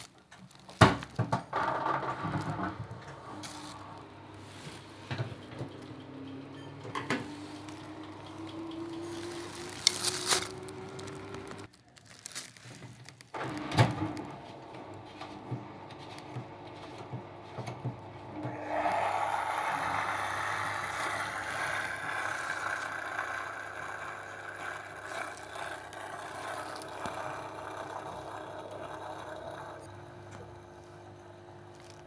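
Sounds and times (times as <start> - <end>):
plastic parts clicking: 7.6 - 14.0.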